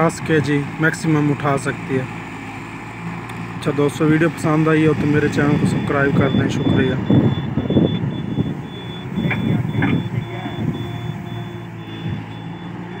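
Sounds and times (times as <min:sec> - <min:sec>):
excavator engine under load: 0:00.0 - 0:13.0
high-pitched warning alarm beeping: 0:05.4 - 0:13.0.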